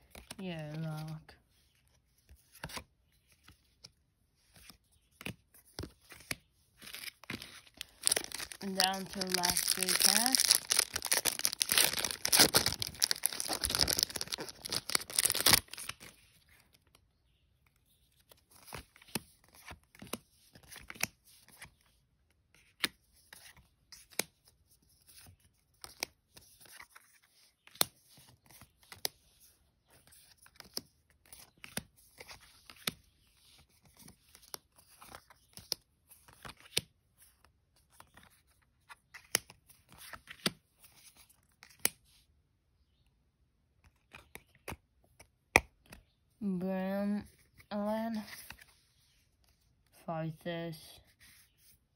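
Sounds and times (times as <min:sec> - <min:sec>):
wrapper tearing and crinkling: 0:06.8 - 0:16.1.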